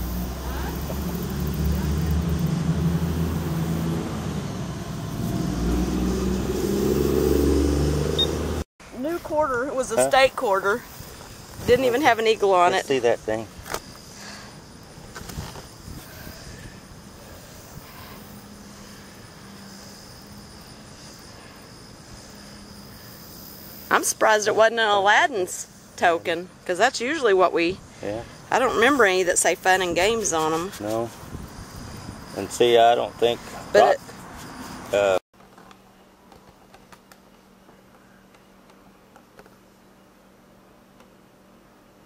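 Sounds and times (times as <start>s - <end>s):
engine droning steadily: 0.0s - 8.6s
high insect drone: 0.0s - 35.2s.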